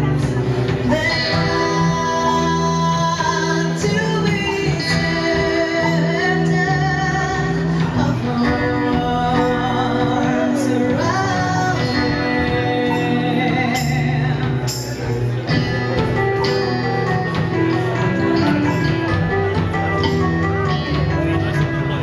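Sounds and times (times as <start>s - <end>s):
woman singing with vibrato: 0.0s - 14.9s
acoustic guitar: 0.0s - 22.0s
drums: 0.0s - 22.0s.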